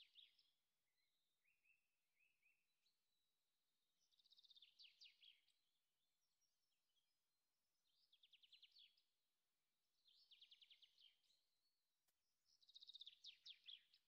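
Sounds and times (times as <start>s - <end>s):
small bird chirping trills: 0.0s - 0.6s, 4.0s - 6.7s, 7.8s - 9.1s, 10.0s - 11.8s, 12.5s - 14.0s.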